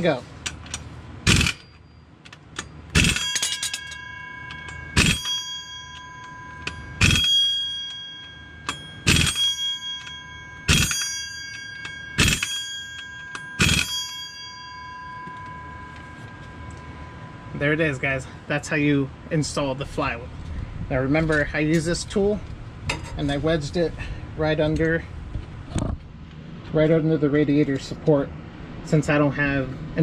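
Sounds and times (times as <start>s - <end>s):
air impact wrench bursts: 1.2s - 1.7s, 2.9s - 3.6s, 5.0s - 5.3s, 7.0s - 7.6s, 9.0s - 9.5s
flywheel ringing like a bell: 1.4s - 19.2s.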